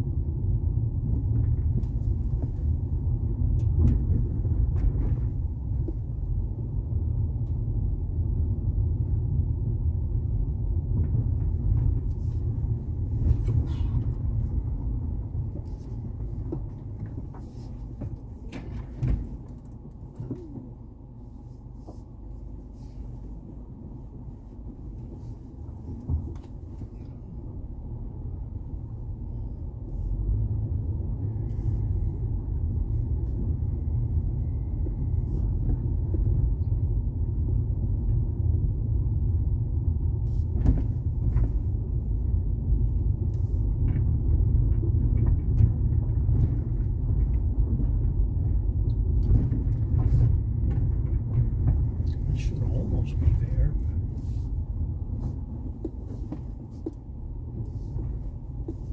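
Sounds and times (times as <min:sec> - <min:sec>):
car road rumble inside cabin: 0:00.0 - 0:58.9
knocks and rattles from rough road: 0:00.0 - 0:58.9.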